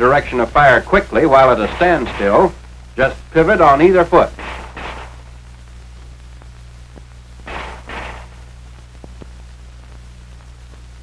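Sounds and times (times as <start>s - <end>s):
low film soundtrack hum: 0.0s - 11.0s
pistol shots: 4.3s - 5.3s, 7.5s - 8.5s
faint soundtrack clicks: 4.8s - 7.2s, 8.4s - 11.0s.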